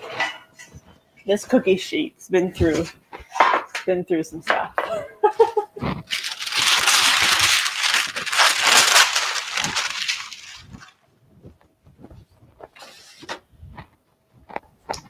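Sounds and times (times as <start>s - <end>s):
parchment paper crumpling: 6.0s - 11.0s.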